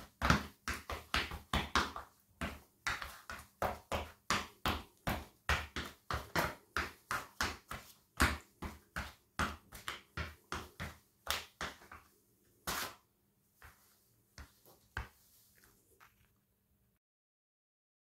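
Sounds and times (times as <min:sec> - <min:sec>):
shoes stamping on bread: 0:00.0 - 0:13.0
shoe scraping on tiles: 0:01.8 - 0:16.4
faint footsteps: 0:02.5 - 0:16.4.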